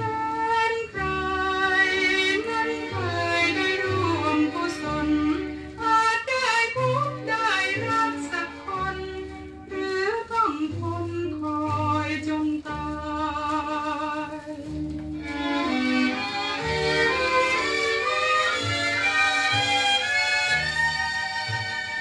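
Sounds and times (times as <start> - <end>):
violins playing melody: 0.0 - 10.6, 13.0 - 22.0
pop song from vinyl record: 0.0 - 22.0
bass line: 6.8 - 22.0.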